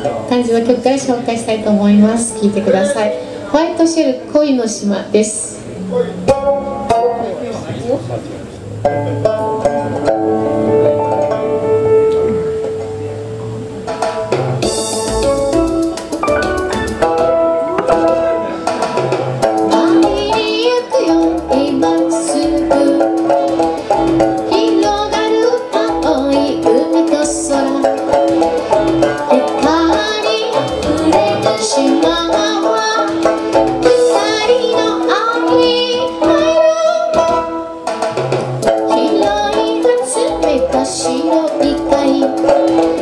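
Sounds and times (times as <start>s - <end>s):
plucked lute: 0.0s - 4.2s, 5.6s - 43.0s
keyboard accompaniment: 0.0s - 43.0s
woman singing pop song: 19.7s - 23.1s, 24.5s - 28.0s, 29.3s - 37.6s, 38.8s - 43.0s
steady bass beat: 25.9s - 34.0s.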